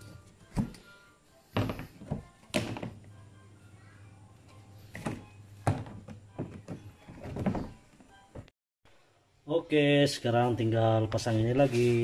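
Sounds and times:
knocks and thunks of parts: 1.6s - 3.1s, 4.9s - 8.5s.

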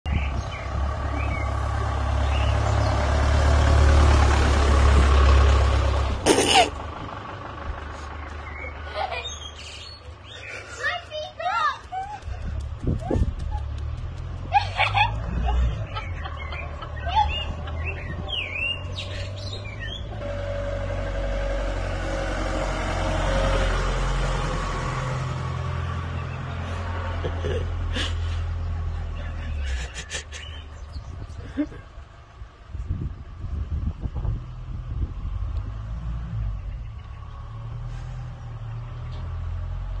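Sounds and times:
small birds chirping: 0.1s - 3.1s, 8.1s - 14.2s, 15.7s - 20.2s, 28.2s - 32.0s, 36.3s - 39.5s
vehicle engine noise: 0.1s - 40.0s.

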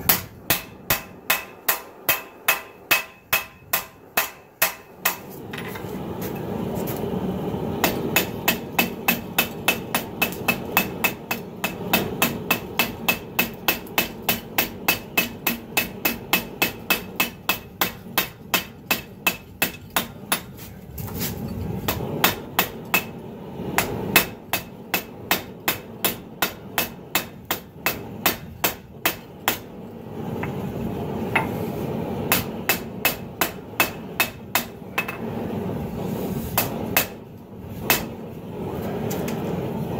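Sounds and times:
hammer striking steel on anvil: 0.0s - 5.8s, 7.8s - 20.5s, 21.9s - 23.2s, 23.8s - 29.7s, 32.3s - 35.2s, 36.6s - 37.2s, 37.9s - 38.1s
steady rushing noise: 0.0s - 39.9s.

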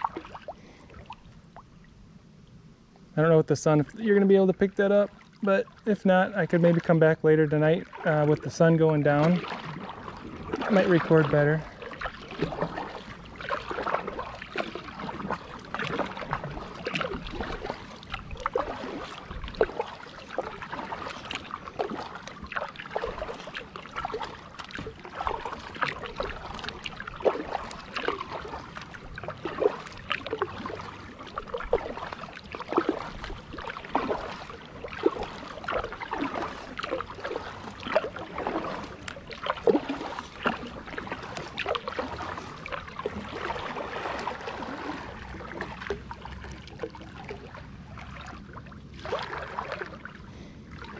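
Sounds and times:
paddle dipping into water: 0.0s - 50.9s
water dripping off paddle: 7.6s - 48.4s.

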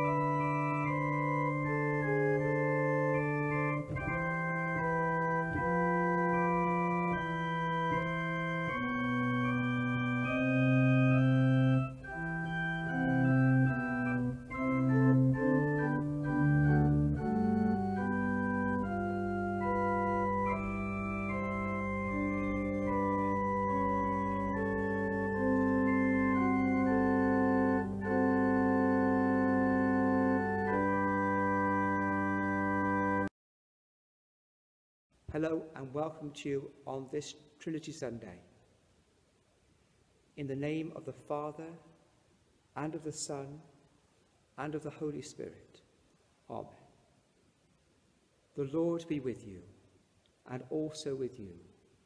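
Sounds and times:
low organ bass note: 0.0s - 33.3s
organ playing chords: 0.0s - 33.3s.

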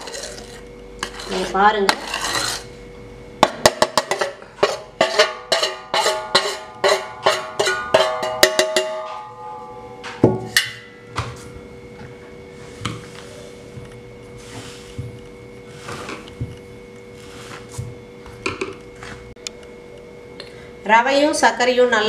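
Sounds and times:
steel kitchenware knocking and clinking: 3.6s - 9.4s.

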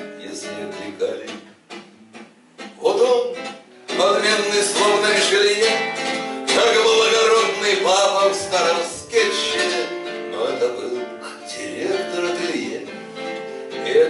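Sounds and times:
strummed acoustic guitar: 0.0s - 14.0s
man singing: 2.8s - 13.0s, 13.7s - 14.0s.

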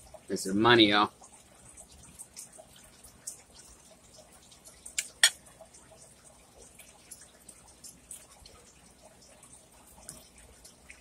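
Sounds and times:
wet chewing and mouth smacks: 4.9s - 5.4s.

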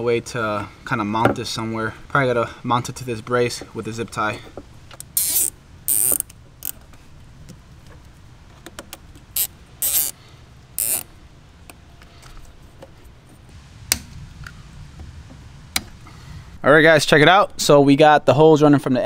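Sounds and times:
zip tie ratcheting tight: 5.1s - 6.8s, 9.4s - 10.2s, 10.8s - 11.1s.

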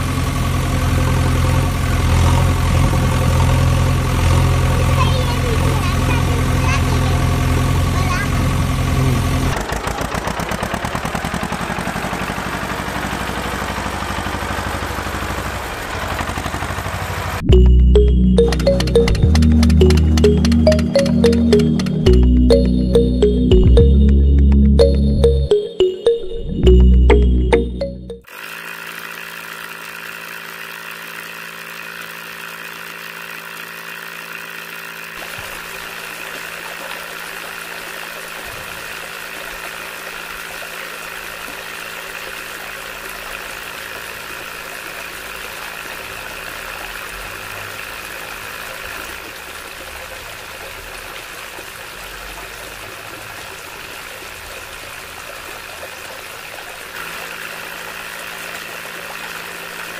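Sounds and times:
small motor high whine: 28.3s - 49.3s.

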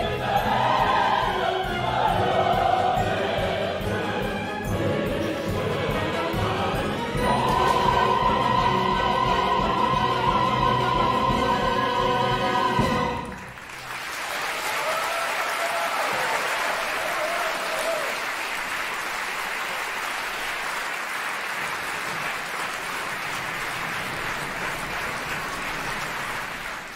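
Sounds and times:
orchestra and singers held chord: 0.0s - 13.5s
audience applauding: 13.1s - 26.9s.

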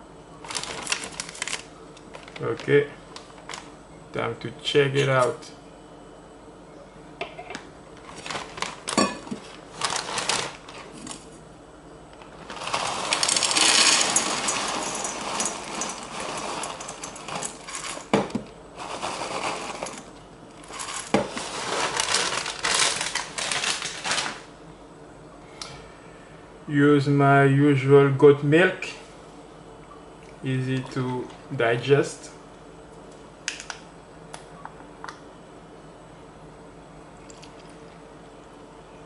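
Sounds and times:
plastic bag crinkling: 0.4s - 3.7s, 8.0s - 11.1s, 12.2s - 18.1s, 18.8s - 24.5s
cereal rattling into metal bowl: 8.1s - 11.2s, 12.4s - 24.4s.

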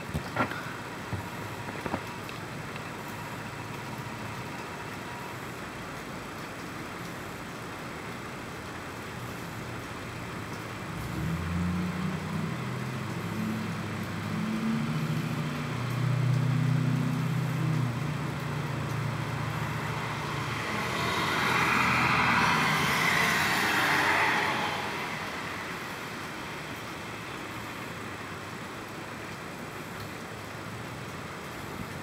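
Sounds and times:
road noise of passing vehicle: 0.0s - 32.0s.

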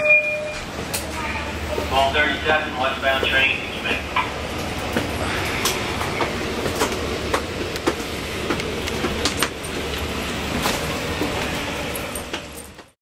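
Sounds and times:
low rumble inside train car: 0.0s - 13.0s
footsteps on stairs: 4.2s - 13.0s.

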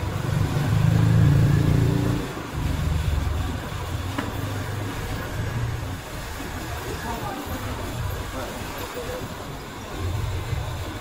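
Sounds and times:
low engine hum: 0.0s - 6.0s.

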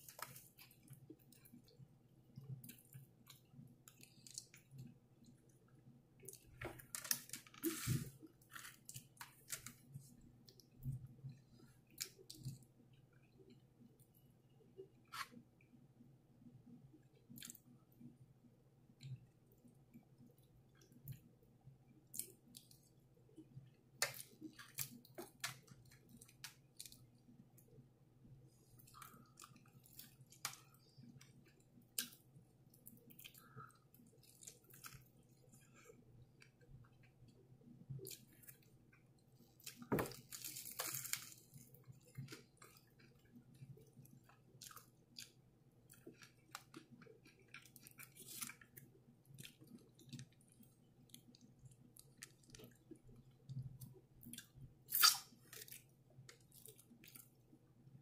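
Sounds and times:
chewing crispy food: 0.0s - 15.7s, 18.9s - 58.0s.

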